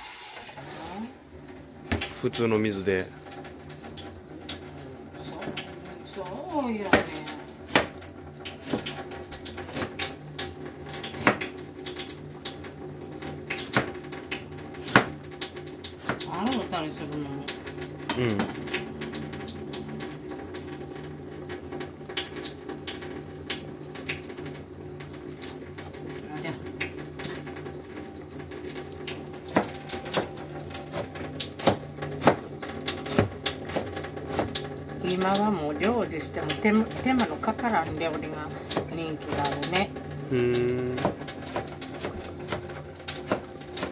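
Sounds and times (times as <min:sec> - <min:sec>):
water running from tap: 0:00.0 - 0:43.9
knocks on cutting board: 0:07.7 - 0:08.0, 0:11.2 - 0:11.5, 0:13.7 - 0:14.0, 0:14.9 - 0:15.2, 0:29.5 - 0:30.3.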